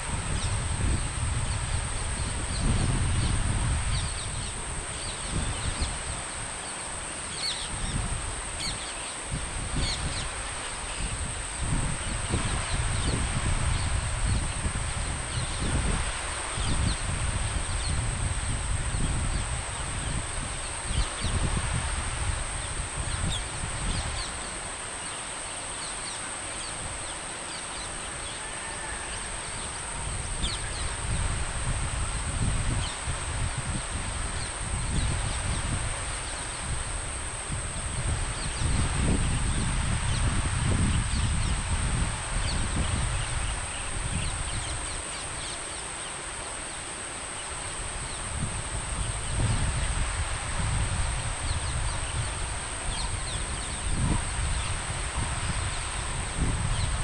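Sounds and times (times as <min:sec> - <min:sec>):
wind buffeting microphone: 0:00.0 - 0:57.0.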